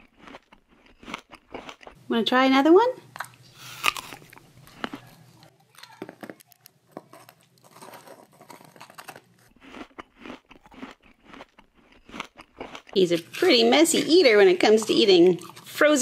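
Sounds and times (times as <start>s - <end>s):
dog crunching frozen treat: 3.2s - 13.6s.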